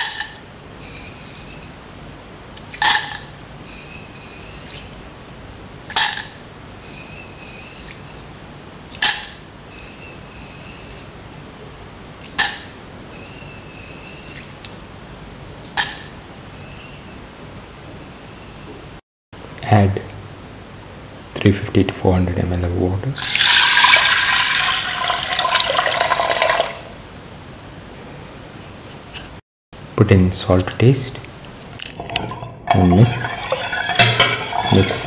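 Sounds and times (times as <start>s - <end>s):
beans clattering into metal pan: 2.7s - 3.3s, 32.0s - 35.0s
pan ringing: 32.0s - 35.0s.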